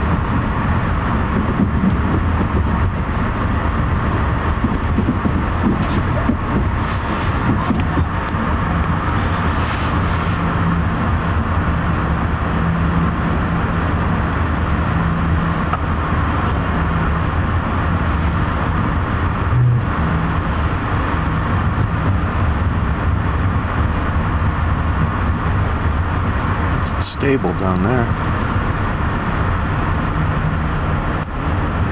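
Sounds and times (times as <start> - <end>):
train coach rumble and hum: 0.0 - 31.9
brief low tone: 19.5 - 20.2.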